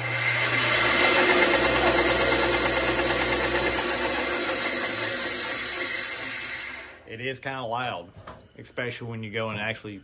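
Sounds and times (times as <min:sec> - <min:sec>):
bandsaw whirring: 0:00.0 - 0:07.1.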